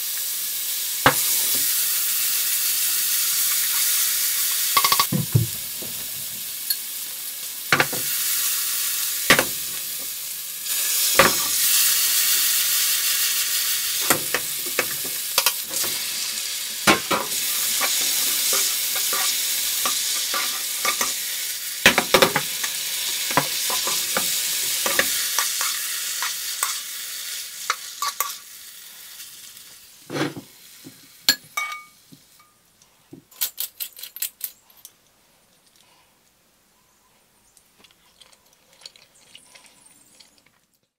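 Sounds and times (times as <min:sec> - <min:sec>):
food sizzling in a frying pan: 0:00.0 - 0:32.6.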